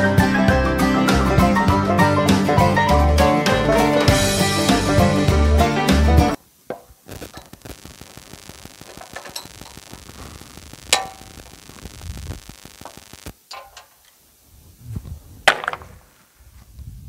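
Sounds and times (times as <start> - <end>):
background music: 0.0 - 6.4
wooden boards knocking: 15.5 - 15.9.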